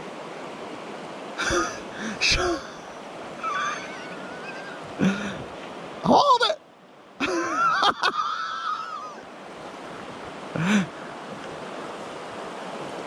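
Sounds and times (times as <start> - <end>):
creek water rushing over rocks: 0.0 - 13.0.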